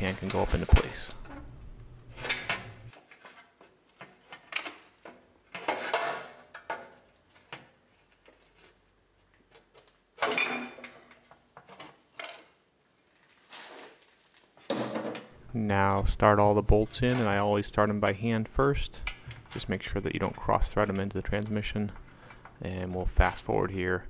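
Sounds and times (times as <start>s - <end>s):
metal clanks and scrapes: 2.1s - 7.1s.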